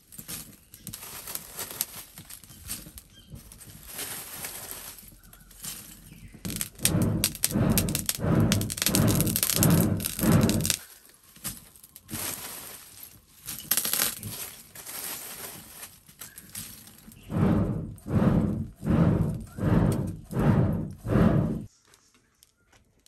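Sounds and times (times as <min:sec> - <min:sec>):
hand-cranked blower whooshing: 0:05.7 - 0:10.8, 0:16.8 - 0:21.7
charcoal lumps clinking: 0:11.4 - 0:17.0.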